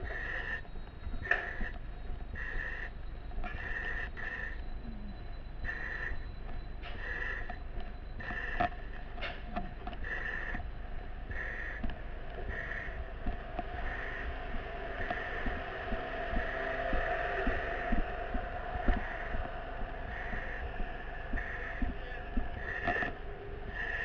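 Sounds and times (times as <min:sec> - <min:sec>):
heavy breathing through mask: 0:03.5 - 0:04.7, 0:08.2 - 0:24.0
footsteps: 0:11.8 - 0:24.0.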